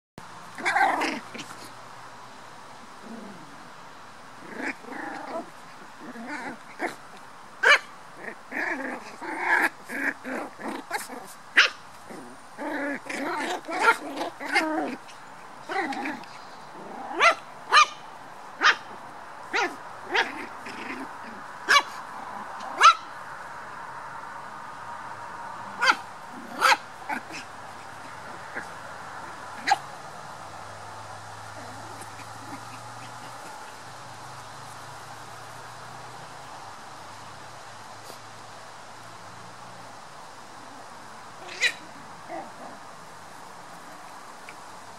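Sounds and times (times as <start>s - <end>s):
puppies growling and yapping: 0.5s - 1.7s, 4.4s - 23.1s, 25.6s - 30.1s, 31.3s - 34.4s, 41.4s - 44.6s.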